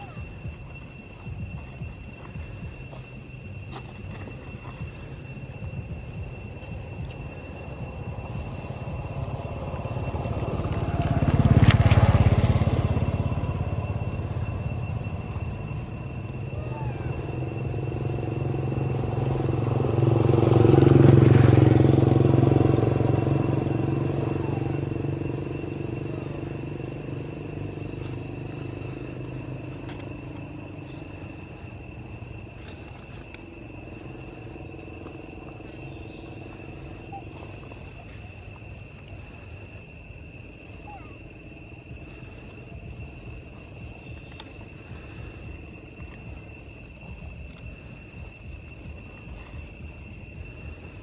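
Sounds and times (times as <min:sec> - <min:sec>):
vehicle engine passing by: 0:07.1 - 0:45.6.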